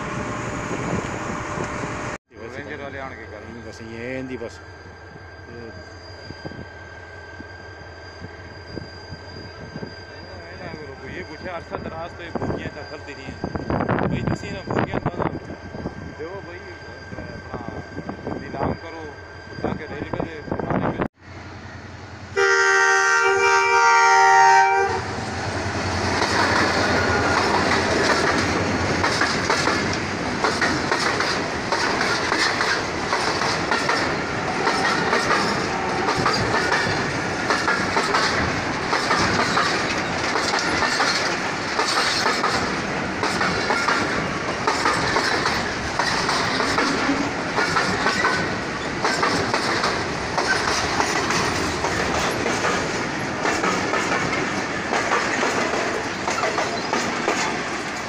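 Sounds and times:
freight train rumbling past: 0.0 - 58.0
locomotive horn: 22.3 - 25.2
train wheels clickety-clack: 25.4 - 58.0.

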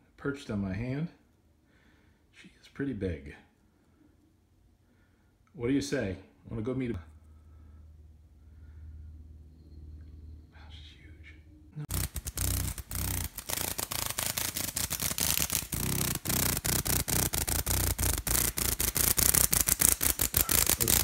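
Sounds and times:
cicada wings buzzing: 11.9 - 21.0.

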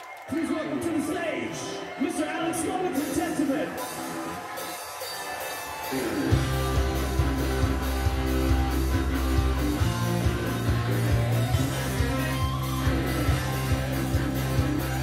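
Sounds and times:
guitar-led song over loudspeakers: 0.2 - 15.0
band with heavy bass: 2.9 - 15.0.

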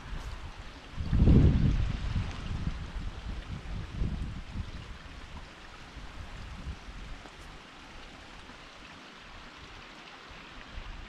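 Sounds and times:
creek rushing over rocks: 0.0 - 11.0.

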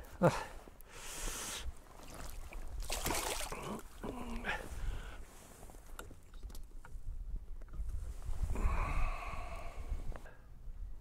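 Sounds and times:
person breathing: 0.2 - 1.7, 3.5 - 5.3, 8.5 - 10.5
wind rumble on microphone: 5.7 - 11.0.

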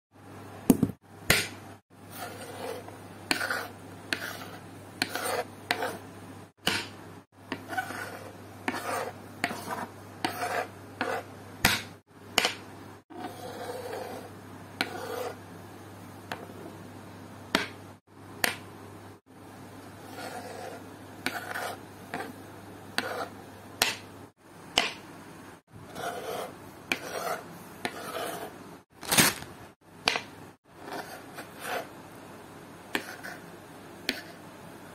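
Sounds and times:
knife chopping on wooden board: 6.6 - 7.7, 11.6 - 12.6, 23.8 - 24.1, 24.8 - 25.0, 30.0 - 30.3.

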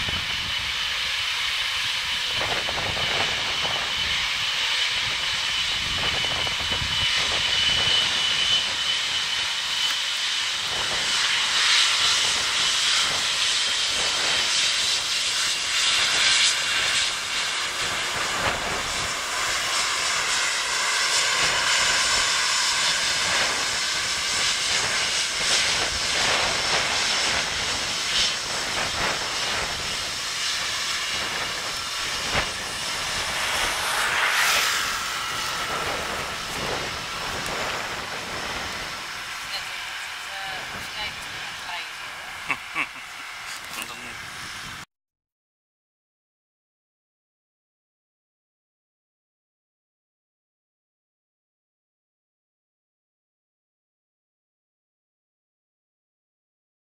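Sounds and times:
jet engines whining hiss: 0.0 - 44.9.

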